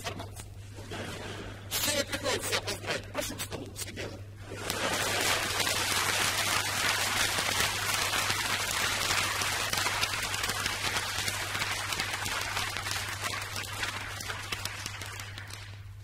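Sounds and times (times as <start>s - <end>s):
low mains hum: 0.0s - 16.0s
audience applause: 4.8s - 16.0s.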